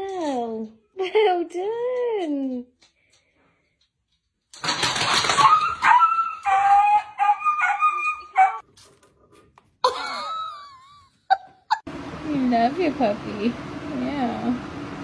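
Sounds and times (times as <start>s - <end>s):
dog barking and yipping: 5.2s - 8.6s
dog wavering howl: 5.4s - 8.6s.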